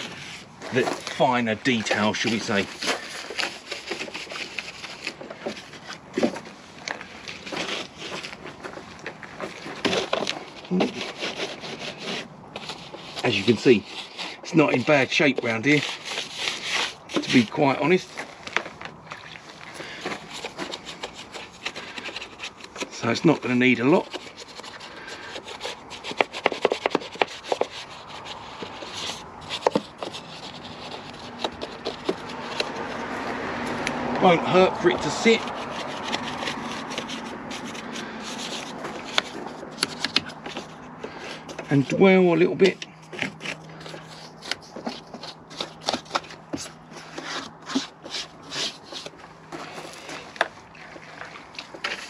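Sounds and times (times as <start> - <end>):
brush bristles scrubbing: 0.0 - 52.0.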